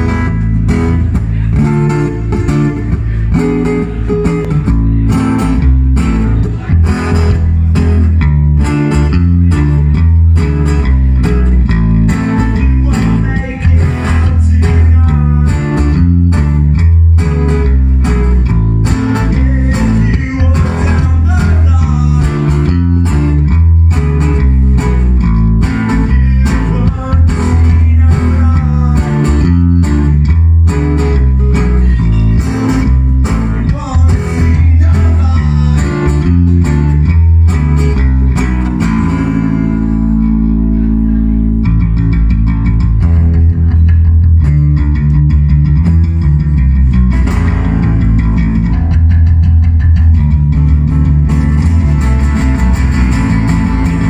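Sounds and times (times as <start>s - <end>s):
steady beat: 0.0s - 39.9s
electric bass guitar: 0.0s - 54.0s
strummed acoustic guitars: 0.0s - 54.0s.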